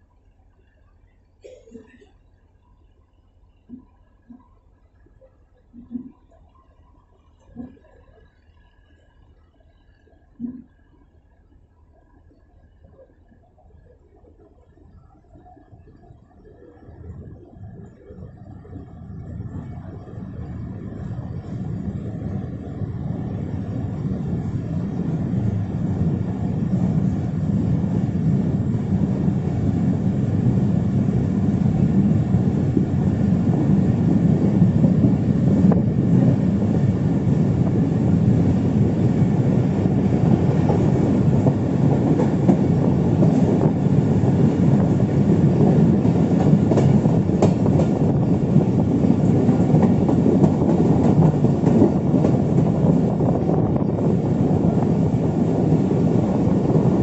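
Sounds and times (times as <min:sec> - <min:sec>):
train wheels rumbling on rails: 0:16.9 - 0:57.0.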